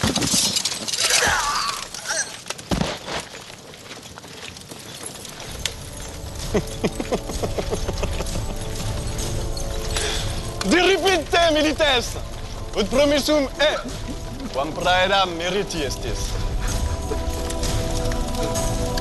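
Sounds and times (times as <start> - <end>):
low rumble: 5.4 - 19.0
sustained music tones: 5.4 - 19.0.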